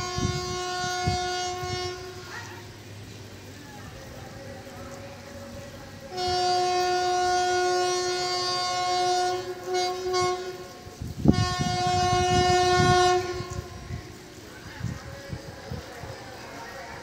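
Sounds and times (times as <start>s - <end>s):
locomotive horn blasts: 0.0s - 2.3s, 6.1s - 14.2s.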